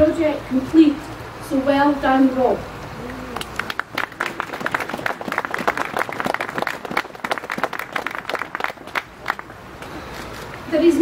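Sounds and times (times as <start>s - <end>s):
crowd applauding: 3.3s - 9.6s.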